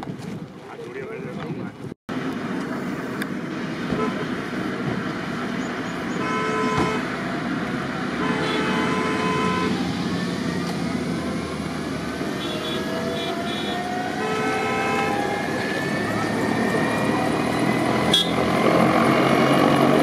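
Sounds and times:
helicopter turbine whine: 2.1s - 20.0s
horn honking: 3.8s - 4.6s, 5.9s - 9.9s, 12.1s - 18.6s.

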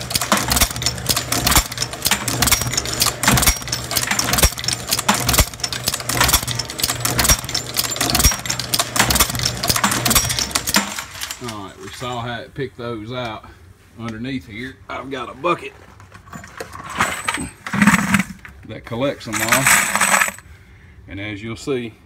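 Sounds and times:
motor hum: 0.0s - 12.0s
brass cases clinking and rattling: 0.0s - 12.3s, 16.1s - 18.6s, 19.3s - 20.4s
machine tool head stroking: 17.6s - 18.5s.

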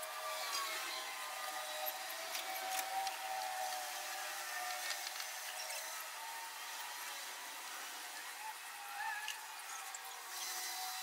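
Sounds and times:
cable and fittings clicking and rubbing: 2.2s - 3.9s, 4.6s - 5.8s.

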